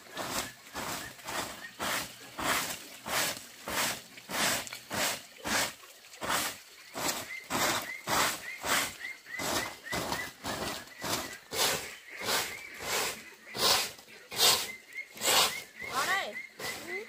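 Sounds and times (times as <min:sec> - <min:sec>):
broom sweeping concrete floor: 0:00.0 - 0:16.9.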